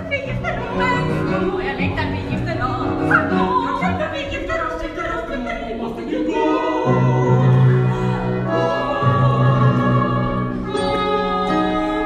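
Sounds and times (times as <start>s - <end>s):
operatic singers: 0.0s - 12.0s
orchestral accompaniment: 6.4s - 12.0s.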